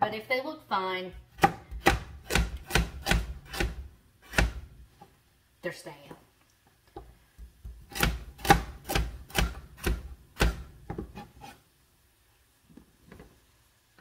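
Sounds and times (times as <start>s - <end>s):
knife chopping on cutting board: 1.3s - 4.7s, 7.4s - 11.5s.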